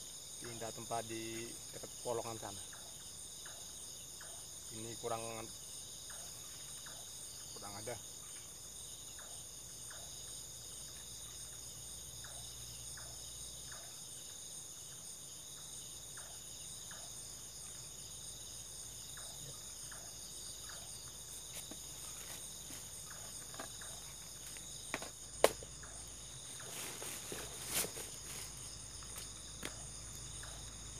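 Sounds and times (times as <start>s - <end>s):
crickets shrilling: 15.8s - 30.9s.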